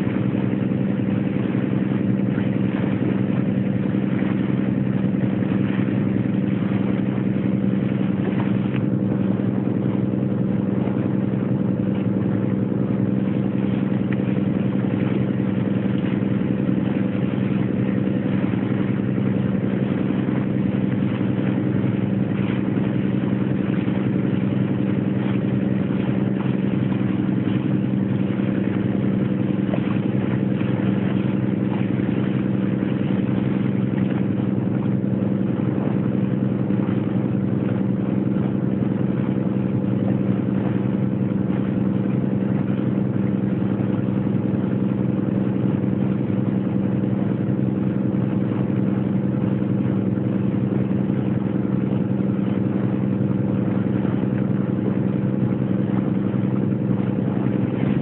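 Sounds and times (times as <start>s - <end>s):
boat engine droning: 0.0s - 58.0s
wind: 0.0s - 58.0s
water hissing: 13.4s - 34.9s.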